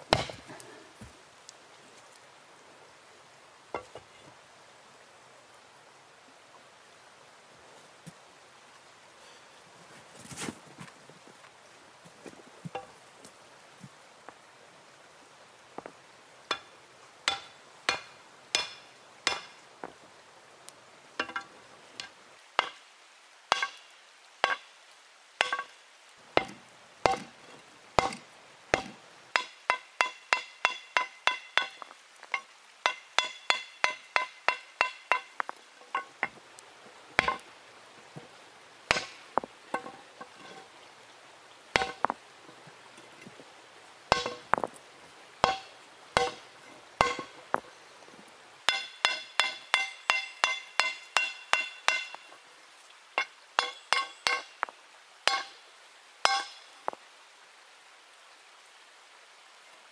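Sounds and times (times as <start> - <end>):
stone hammering hot steel: 0.1 - 0.4, 17.3 - 19.6, 21.2 - 22.8, 23.5 - 24.6, 25.4 - 25.8, 26.4 - 27.4, 28.0 - 36.3, 37.2 - 37.4, 38.9 - 40.6, 41.8 - 42.1, 44.1 - 44.6, 45.4 - 47.4, 48.7 - 52.3, 53.2 - 54.7, 55.3 - 55.6, 56.3 - 56.7.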